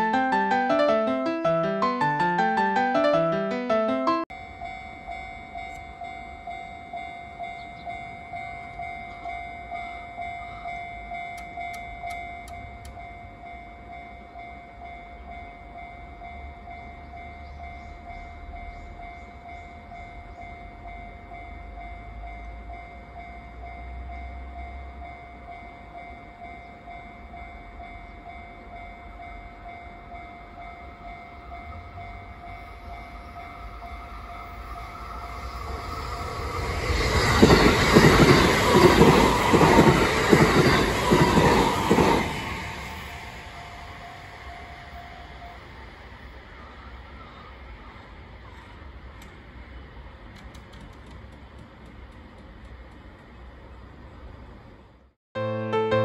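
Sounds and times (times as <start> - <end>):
level crossing alarm ringing: 0.0 - 45.8
train wheels rumbling and clattering: 34.4 - 44.0, 48.4 - 54.9.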